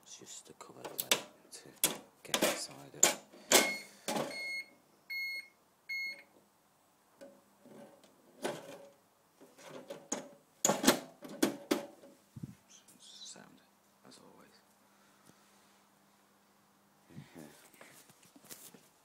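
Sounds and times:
panel cover knocking and clattering: 9.6s - 12.0s.

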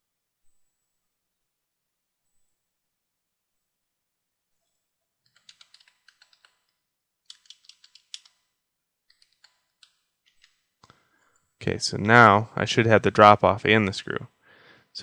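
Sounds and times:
computer keyboard typing: 5.3s - 6.7s, 7.3s - 8.5s, 9.1s - 10.6s.

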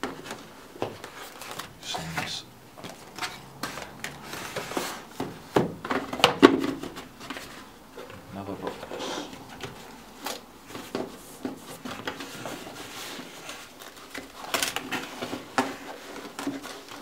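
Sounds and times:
cardboard packaging rustling: 0.0s - 5.4s.

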